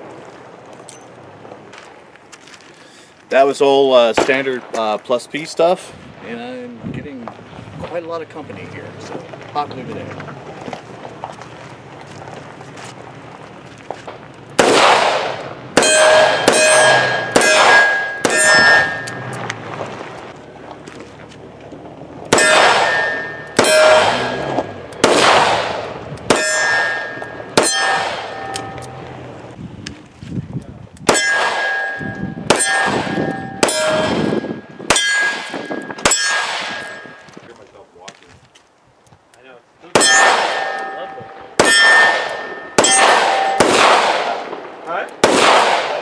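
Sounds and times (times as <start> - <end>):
revolver shots: 14.6 - 19.7, 22.3 - 29.2
steel target ringing clang: 15.2 - 19.4, 22.3 - 29.0, 31.1 - 37.3, 40.0 - 44.2.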